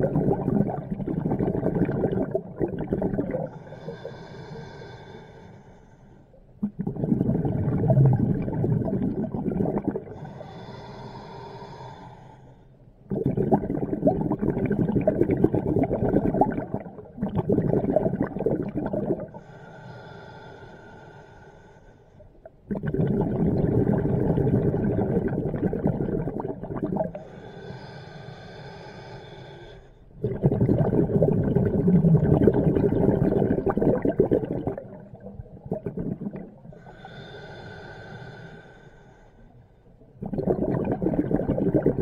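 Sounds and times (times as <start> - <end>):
bubbling exhalations underwater: 0.0 - 3.9, 6.6 - 10.4, 13.1 - 19.4, 22.7 - 27.2, 30.2 - 37.2, 40.2 - 42.0
hissing inhale: 3.5 - 6.4, 10.1 - 12.8, 19.3 - 22.3, 27.1 - 30.2, 36.7 - 39.7.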